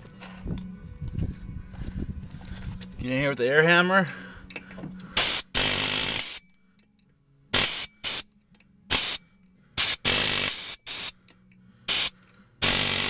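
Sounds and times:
pneumatic air hammer bursts: 5.2s - 6.4s, 7.6s - 8.3s, 8.9s - 9.2s, 9.8s - 11.2s, 11.9s - 13.0s.

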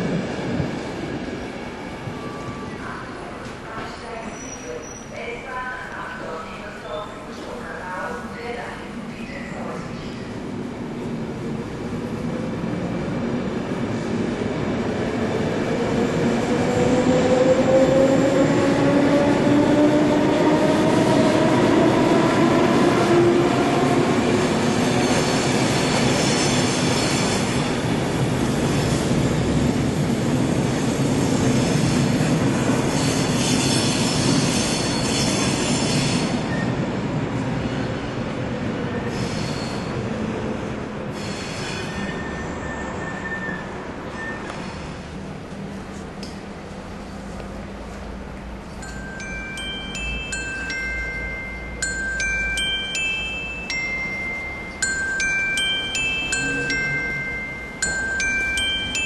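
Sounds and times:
high-pitched wheel squeal: 41.3s - 44.6s.

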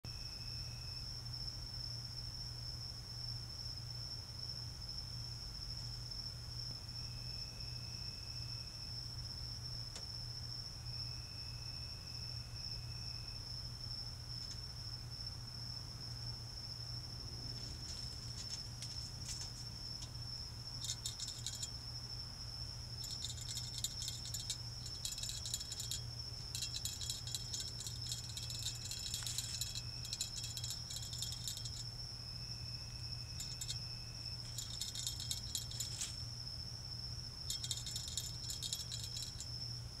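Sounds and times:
cricket trill: 0.1s - 40.0s
low steady hum: 0.1s - 40.0s
insect rasping pulses: 19.9s - 40.0s.

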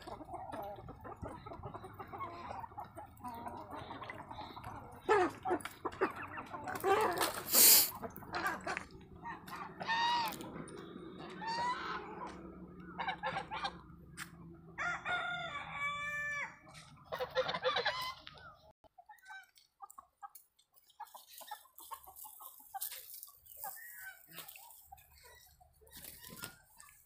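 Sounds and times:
chickens clucking: 0.0s - 27.0s
rooster crowing: 14.7s - 16.6s.

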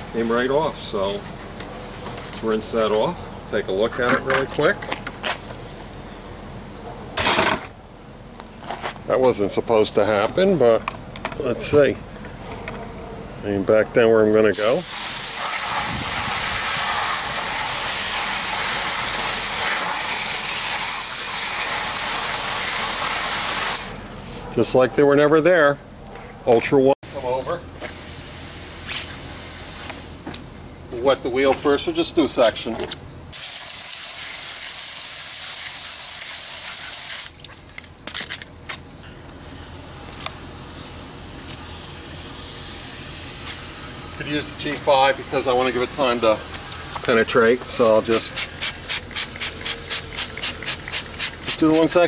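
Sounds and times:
water spray hissing: 14.6s - 24.0s, 33.4s - 37.4s, 47.7s - 52.0s.

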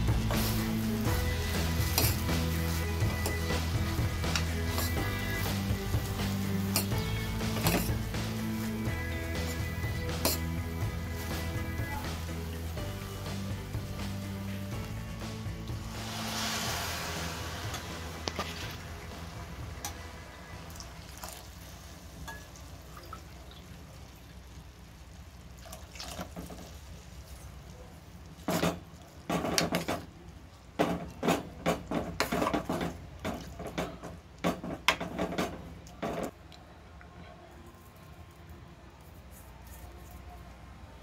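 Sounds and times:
spoon stirring in steel pot: 1.7s - 8.2s, 8.8s - 12.0s.

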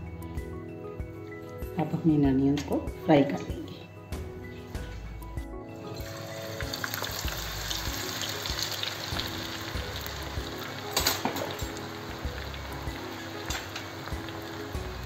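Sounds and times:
onions deep-frying in oil: 5.8s - 15.0s.

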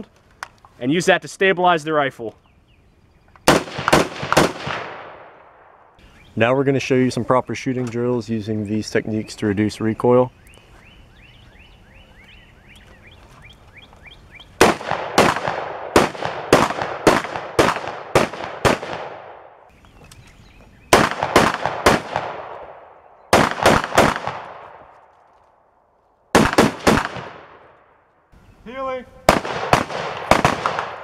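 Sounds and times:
bird chirping: 2.2s - 3.5s, 6.0s - 14.6s, 19.7s - 21.0s, 28.3s - 29.2s
rifle shots echoing: 3.4s - 6.0s, 14.6s - 19.7s, 20.9s - 25.2s, 26.3s - 28.0s, 29.2s - 31.0s.

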